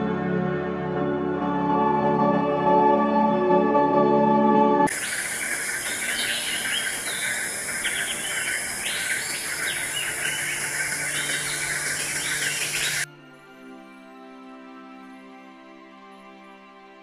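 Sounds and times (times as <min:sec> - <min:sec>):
birds chirping: 0:04.9 - 0:13.1
high insect drone: 0:04.9 - 0:13.1.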